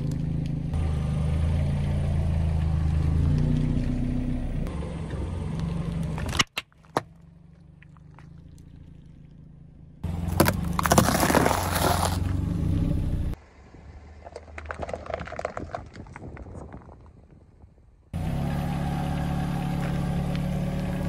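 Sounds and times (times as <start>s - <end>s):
car engine running: 7.0s - 13.4s, 18.2s - 21.0s
ice-cream cone crunching: 10.3s - 12.3s
plastic cups crushed crackling: 10.3s - 12.3s.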